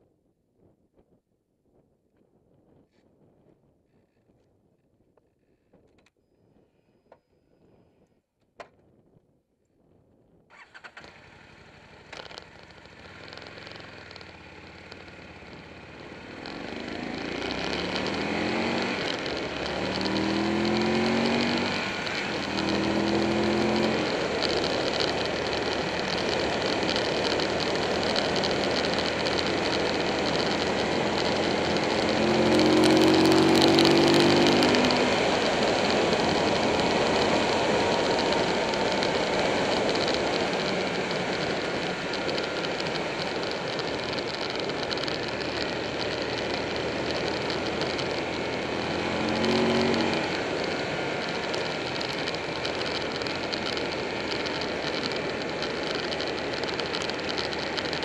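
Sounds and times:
motorcycle engine accelerating: 10.6s - 58.0s.

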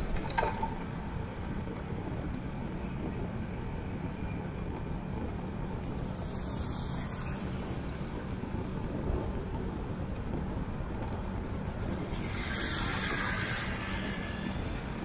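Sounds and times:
wind and road noise: 0.0s - 15.0s
high hiss: 5.9s - 8.4s, 11.9s - 15.0s.

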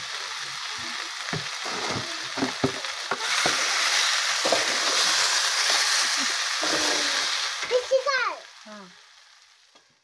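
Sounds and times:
chicken sizzling in a pan: 0.0s - 10.0s
metal spatula scraping a pan: 3.1s - 7.5s.

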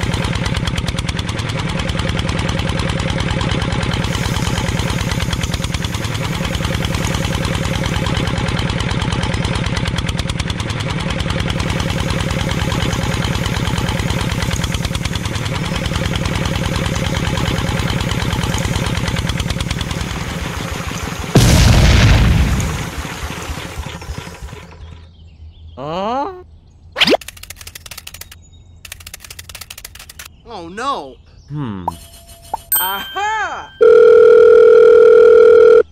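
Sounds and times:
diesel engine chugging at idle: 0.0s - 25.4s.

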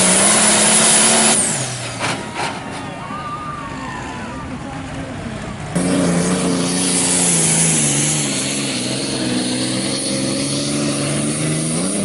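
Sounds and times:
vehicle engine running: 4.1s - 12.0s.

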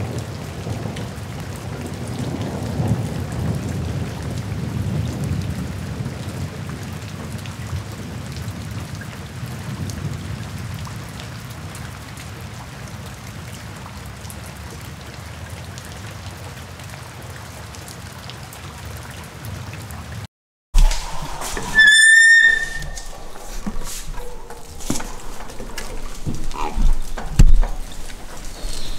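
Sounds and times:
steady rain falling: 0.0s - 28.9s
rain drop ticks: 23.0s - 28.9s.

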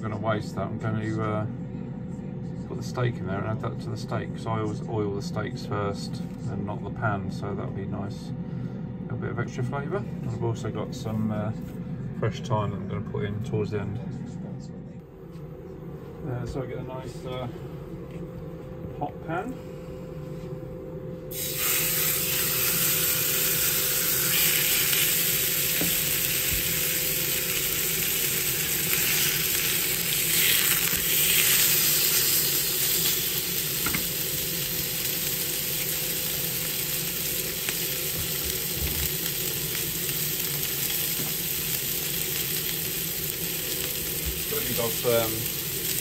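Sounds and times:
steak sizzling in a frying pan: 21.3s - 46.0s.

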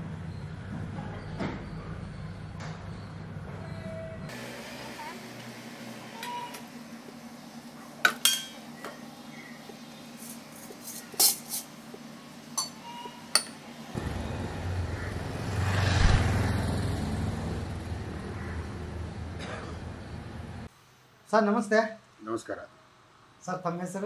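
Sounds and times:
tableware clinking: 8.0s - 8.6s, 12.6s - 13.6s
passing road vehicle rumble: 13.9s - 20.7s.

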